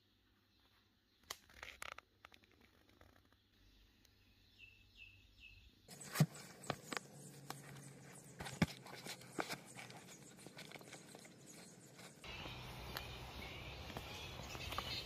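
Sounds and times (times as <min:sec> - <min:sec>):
shoe taps knocks and rustles: 0:06.1 - 0:11.0.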